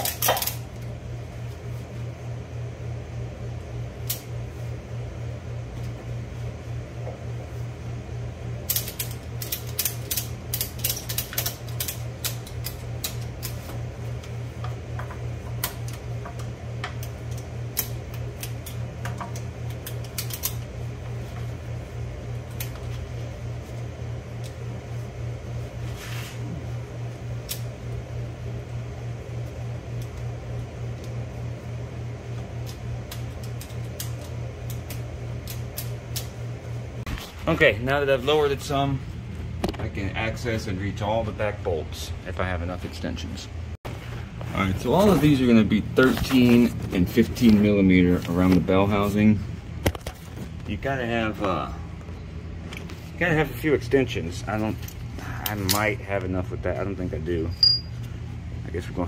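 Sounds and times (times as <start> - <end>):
fan humming: 0.0 - 59.0
rapid ratchet clicking: 8.7 - 13.5.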